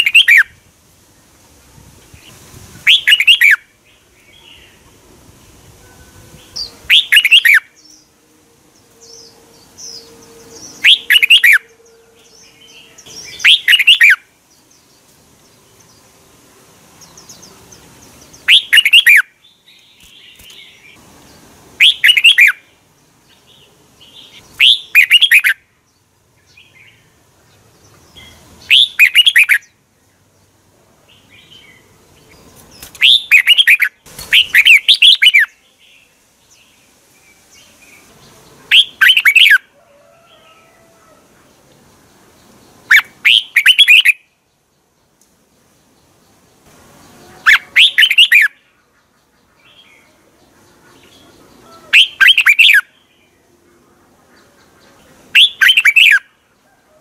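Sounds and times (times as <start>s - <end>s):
bulbul singing whistled phrases: 0.0s - 0.6s, 2.8s - 3.7s, 6.3s - 8.0s, 9.0s - 14.3s, 18.3s - 20.9s, 21.8s - 22.7s, 24.2s - 25.6s, 28.2s - 29.7s, 32.8s - 35.7s, 38.7s - 39.7s, 42.8s - 44.3s, 47.4s - 48.8s, 51.6s - 53.0s, 55.3s - 56.4s.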